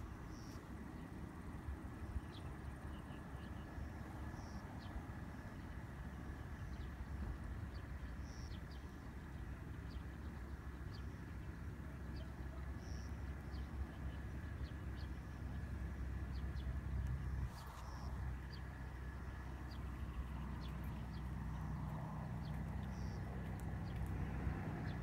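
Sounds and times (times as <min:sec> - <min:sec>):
steady low rumble: 0:00.0 - 0:25.0
faint thin whine: 0:15.0 - 0:23.5.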